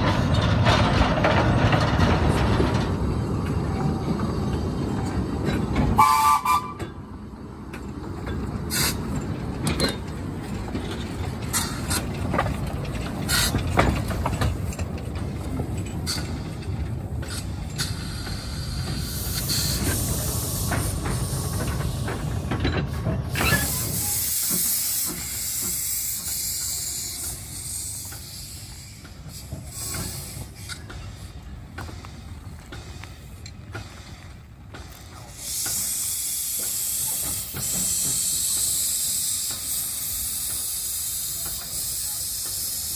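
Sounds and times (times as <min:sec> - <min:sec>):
clanks and knocks: 0:00.0 - 0:03.6, 0:07.7 - 0:19.0, 0:20.6 - 0:23.8
steam train rumbling: 0:00.0 - 0:42.9
steam whistle toot: 0:06.0 - 0:06.9
steam hissing: 0:10.9 - 0:14.7, 0:16.0 - 0:42.9.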